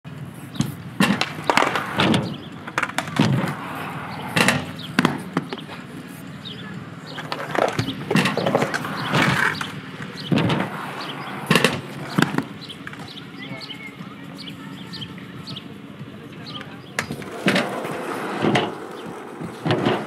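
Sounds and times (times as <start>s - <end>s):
inline skates rolling on concrete: 0.1s - 20.0s
skates grinding: 0.1s - 20.0s
skates clacking on landing: 0.5s - 13.3s, 16.3s - 20.0s.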